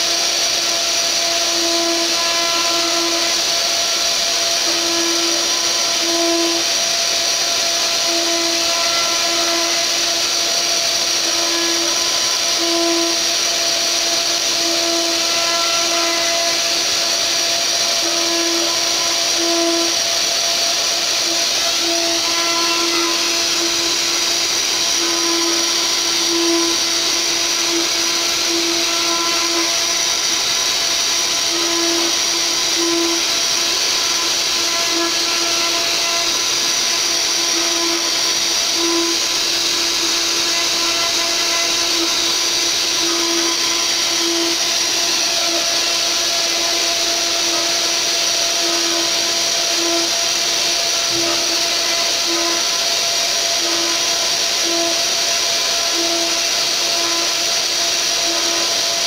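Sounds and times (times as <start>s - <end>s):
router spindle high whine: 0.0s - 59.0s.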